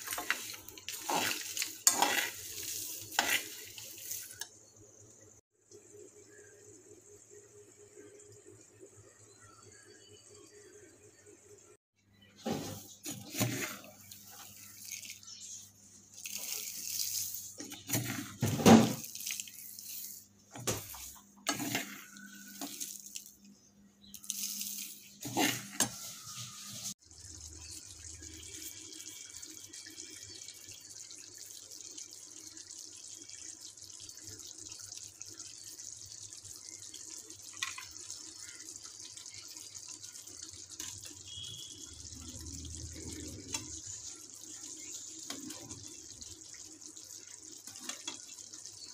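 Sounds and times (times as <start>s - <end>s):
metal ladle scraping spices: 0.0s - 4.4s, 24.2s - 26.9s
curry sizzling in a frying pan: 0.0s - 10.3s, 12.4s - 23.4s, 24.0s - 48.9s.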